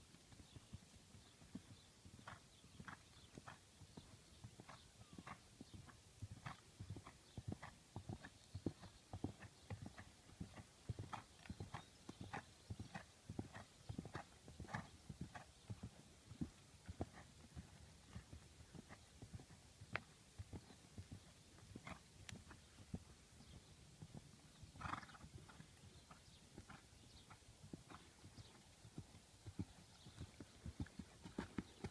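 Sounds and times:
horse hoofbeats on hard ground: 30.1 - 31.9.

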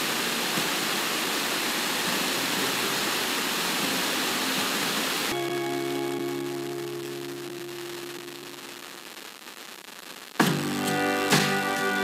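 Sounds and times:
radio static: 2.3 - 12.0
music with steady notes: 5.3 - 8.7, 10.4 - 12.0.

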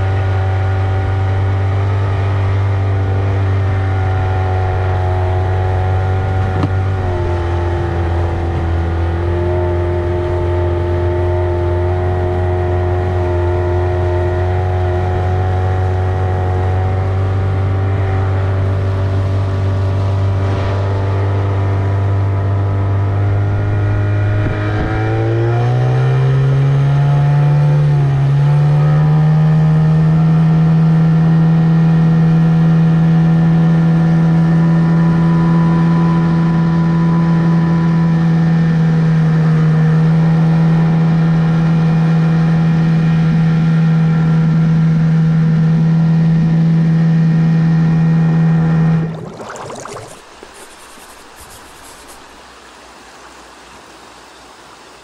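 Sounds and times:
outboard motor running: 0.0 - 20.8.

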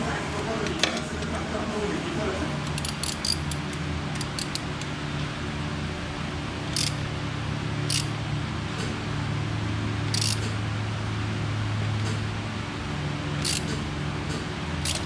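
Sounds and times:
steady low hum: 0.0 - 15.0
hand ratchet clicking: 2.6 - 4.9, 6.7 - 7.0, 7.9 - 8.2, 10.1 - 10.6, 13.4 - 13.8, 14.8 - 15.0.

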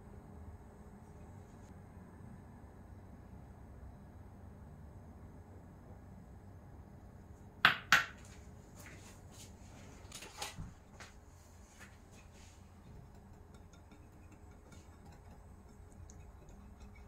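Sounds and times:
glass bowl clinking: 12.2 - 17.0.

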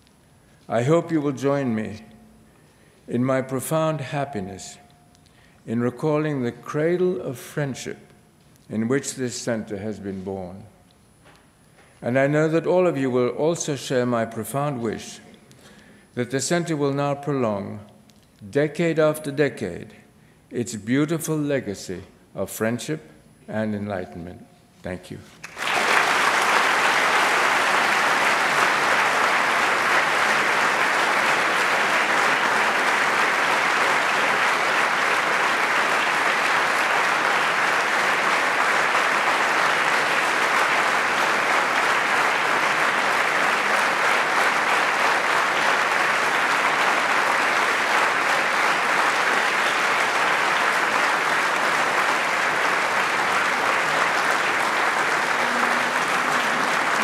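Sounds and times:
audience applauding: 25.4 - 57.0.

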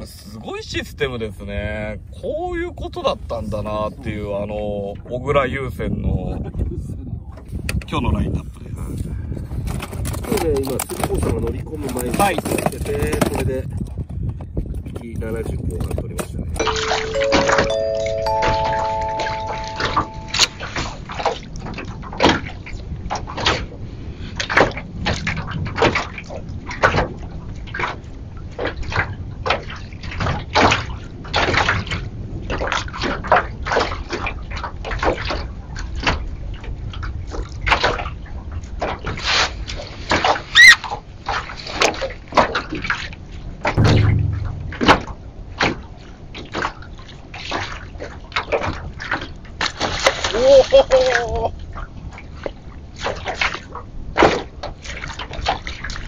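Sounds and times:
water slapping against boat hull: 21.1 - 23.8, 24.4 - 40.5, 46.4 - 50.4, 51.0 - 56.0
dull thump: 43.8 - 45.2.

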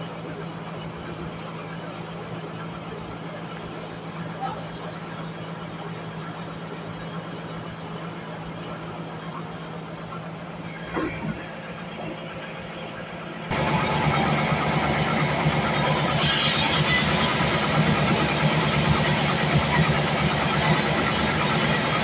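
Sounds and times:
engine idling: 0.0 - 22.0
band sawmill running: 7.8 - 22.0.

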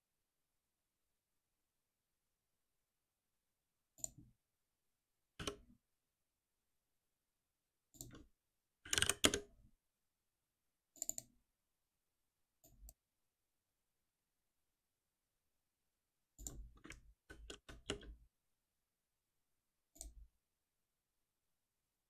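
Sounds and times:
computer keyboard keystrokes: 8.9 - 9.4, 16.4 - 18.1
mouse clicks: 11.0 - 11.3.

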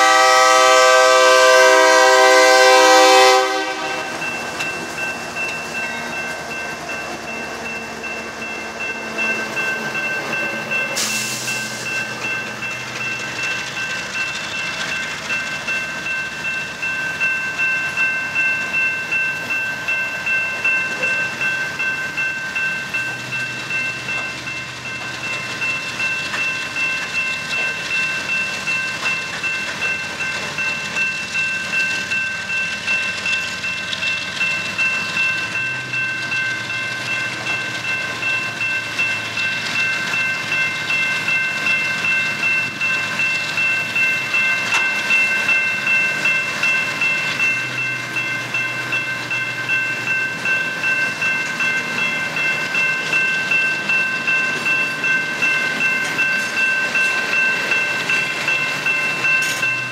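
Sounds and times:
crossing warning bell ringing: 0.0 - 59.9
diesel locomotives passing: 0.0 - 59.9
train wheels clattering on rails: 0.0 - 59.9.

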